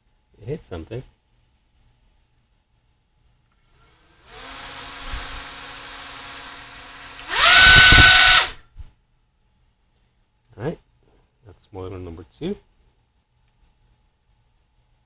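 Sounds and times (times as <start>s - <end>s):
drone motor whine: 4.2s - 8.6s.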